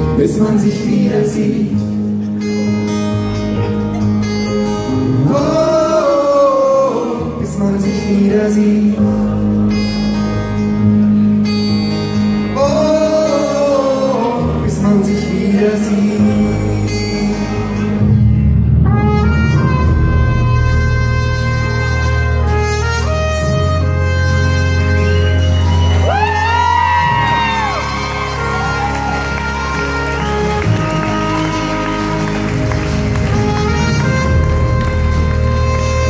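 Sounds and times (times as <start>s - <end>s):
live band playing: 0.0s - 36.0s
trumpet playing: 18.7s - 36.0s.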